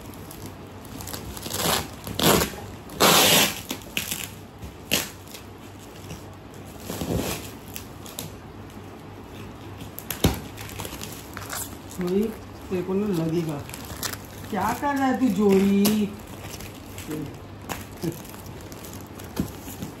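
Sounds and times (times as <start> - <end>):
plastic packaging crinkling: 0.0 - 20.0
dog chewing plastic: 9.4 - 20.0.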